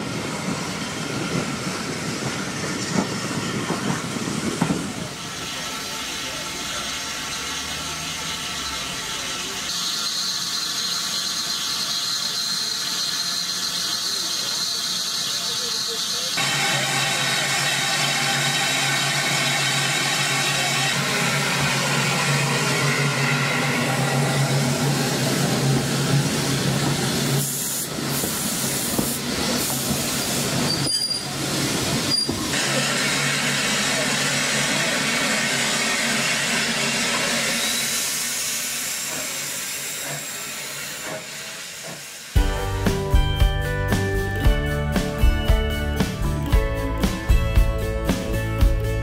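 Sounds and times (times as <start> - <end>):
steam hissing: 0.0 - 42.4
people talking: 4.6 - 9.8, 10.5 - 22.3, 32.6 - 35.6.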